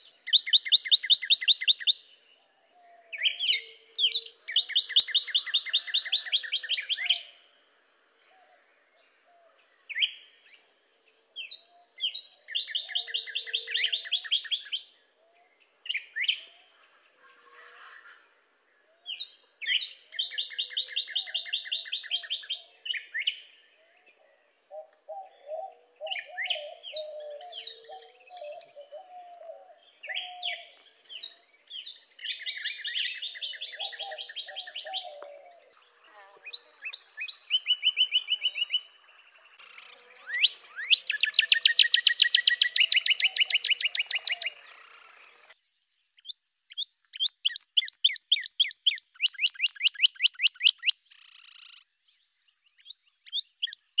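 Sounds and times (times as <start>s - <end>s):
bird singing slurred whistles: 0.0s - 2.0s, 3.2s - 7.2s, 11.6s - 14.9s, 19.1s - 23.4s, 36.5s - 38.9s, 39.6s - 45.6s, 46.2s - 51.8s, 52.8s - 54.0s.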